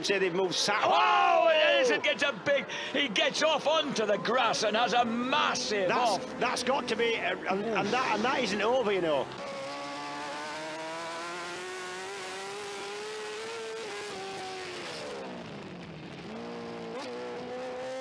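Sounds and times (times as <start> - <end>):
motorcycle engine revving: 9.2 - 18.0.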